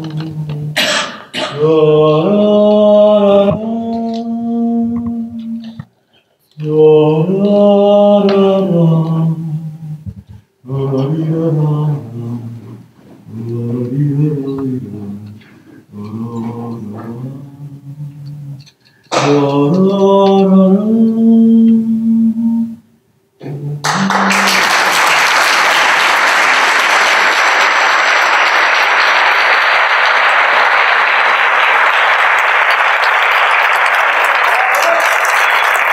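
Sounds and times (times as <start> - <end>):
man singing slow held notes: 0.0 - 0.8, 1.5 - 5.9, 6.6 - 10.0, 10.6 - 24.5
audience applause: 23.9 - 35.9.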